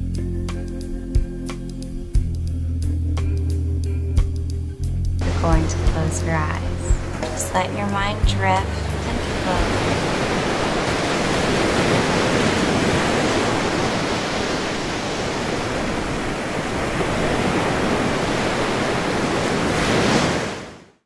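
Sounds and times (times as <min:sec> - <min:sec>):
ocean surf washing: 0:05.2 - 0:21.0.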